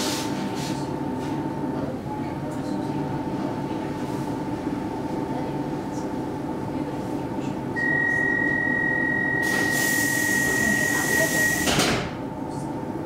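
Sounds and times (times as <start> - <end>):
high warning tone: 7.8 - 11.7
air hiss of closing doors: 9.4 - 11.9.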